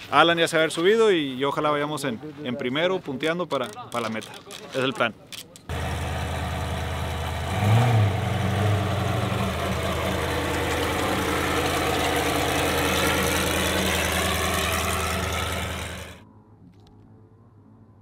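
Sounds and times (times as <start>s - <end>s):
truck engine idling: 5.7s - 16.2s.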